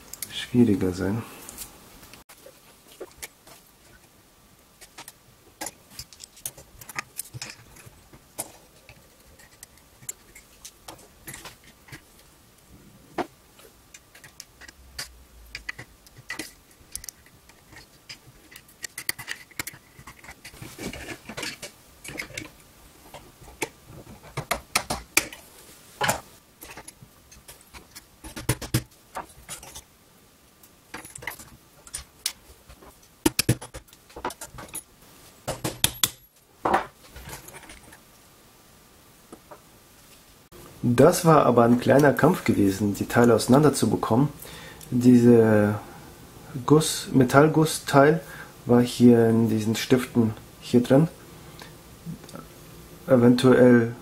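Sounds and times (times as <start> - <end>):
screwdriver clicking and scraping metal: 4.8 - 12.1, 13.9 - 25.4, 26.0 - 29.8, 30.9 - 34.9.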